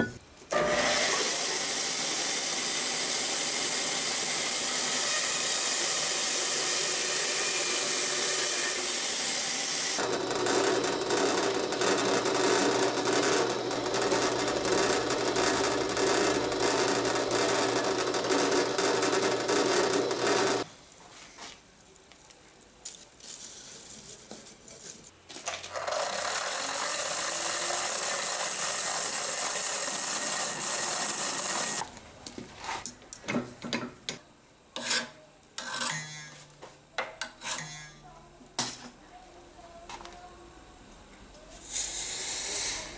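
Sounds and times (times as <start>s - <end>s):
drill press boring into wood: 0.5s - 20.7s, 25.7s - 31.8s
forge rushing hiss: 41.6s - 42.9s.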